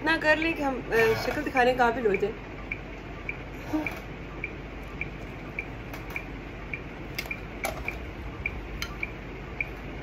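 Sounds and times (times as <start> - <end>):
soft rhythmic ticks: 2.0 - 10.0.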